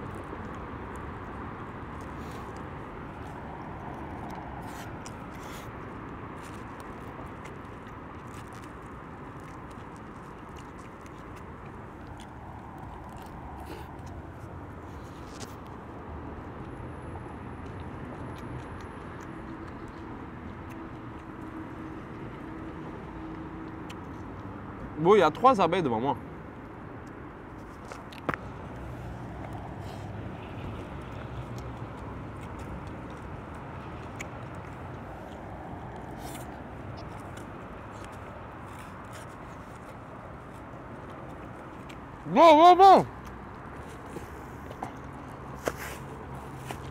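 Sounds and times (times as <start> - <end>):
low traffic rumble: 0.0 - 46.9
outdoor background noise: 0.0 - 46.9.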